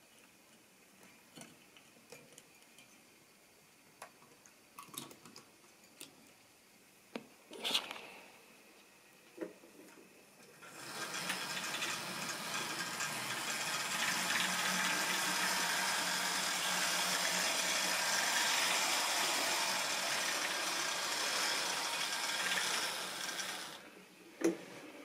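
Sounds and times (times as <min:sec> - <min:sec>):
steady rushing hiss: 0:10.2 - 0:25.0.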